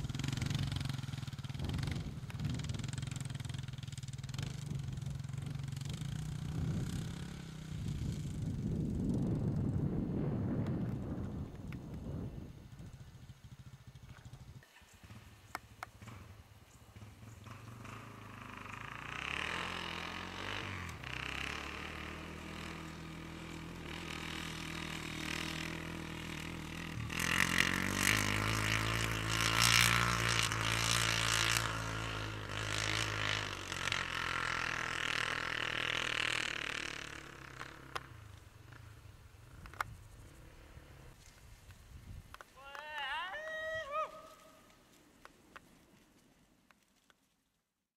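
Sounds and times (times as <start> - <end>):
dirt bike engine revving: 0.0 - 9.6, 12.9 - 41.2.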